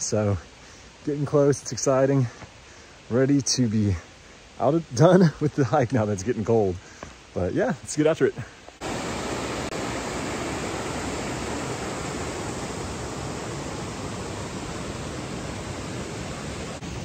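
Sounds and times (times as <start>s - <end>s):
stream rushing over boulders: 0.0s - 17.0s.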